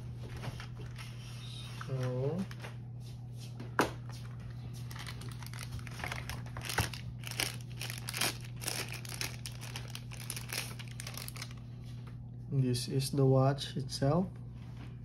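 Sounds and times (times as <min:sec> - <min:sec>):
low hum: 0:00.0 - 0:15.0
plastic bag crinkling: 0:04.8 - 0:11.7.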